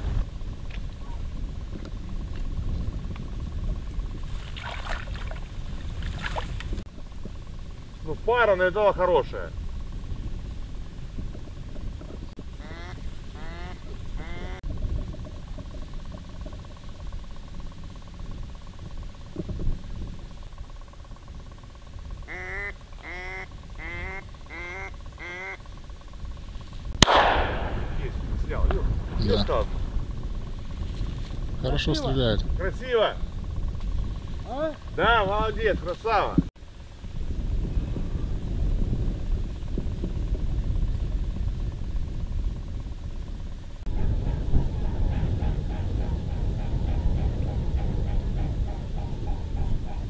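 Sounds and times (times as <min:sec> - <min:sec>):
wind rumbling on microphone: 0:00.0 - 0:50.0
duck quacking: 0:12.6 - 0:14.6, 0:22.2 - 0:25.6.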